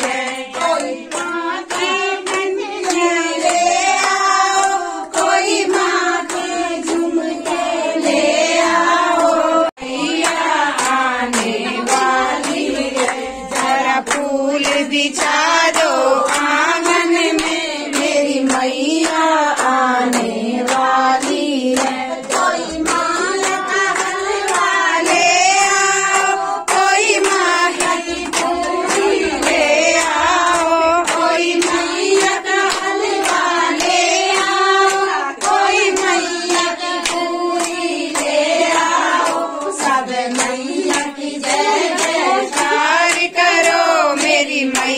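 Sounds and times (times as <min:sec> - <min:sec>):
group singing devotional song: 0:00.0 - 0:44.9
rhythmic hand clapping: 0:00.0 - 0:44.9.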